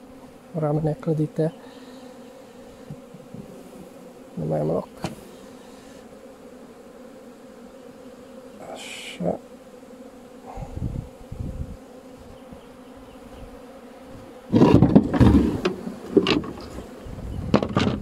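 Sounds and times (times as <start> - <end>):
bees buzzing: 0.0 - 18.0
hive tool scraping and knocking: 2.7 - 3.9, 4.9 - 6.0, 12.1 - 18.0.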